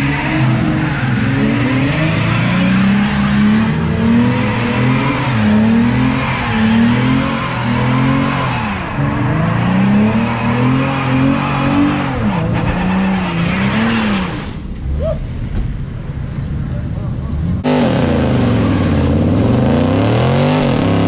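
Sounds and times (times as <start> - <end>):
tyres squealing on pavement: 0.0 - 15.2
car engine revving: 0.0 - 16.5, 17.1 - 21.0.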